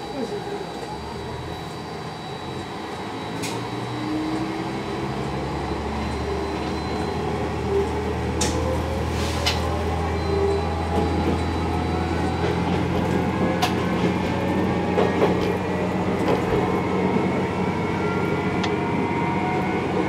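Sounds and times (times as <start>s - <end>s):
diesel railcar engine hum: 0.0s - 20.0s.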